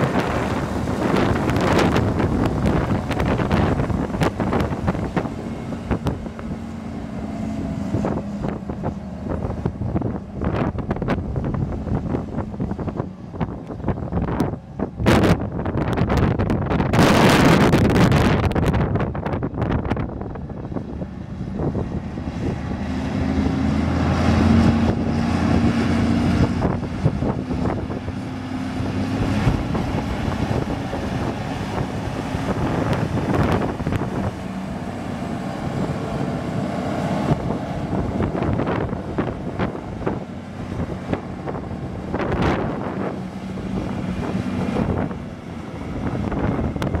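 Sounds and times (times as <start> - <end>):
tractor diesel engine running: 0.0 - 16.9, 18.1 - 47.0.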